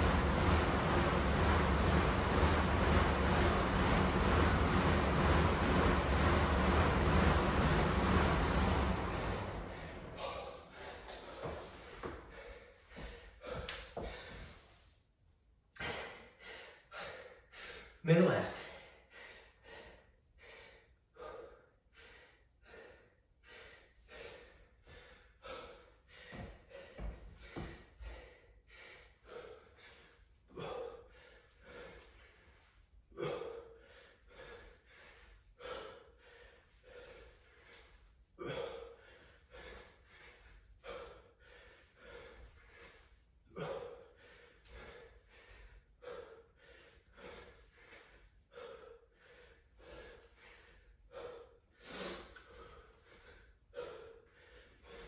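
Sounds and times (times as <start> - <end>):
man breathing hard: 8.1 - 15.0, 15.7 - 18.0, 18.6 - 55.0
forceful exhale: 9.6 - 11.6.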